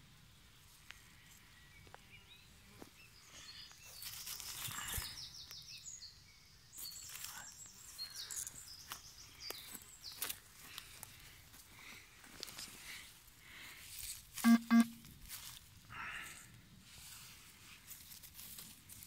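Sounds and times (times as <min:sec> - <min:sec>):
songbirds chirping: 0:00.0 - 0:19.0
dry straw rustling: 0:09.6 - 0:19.0.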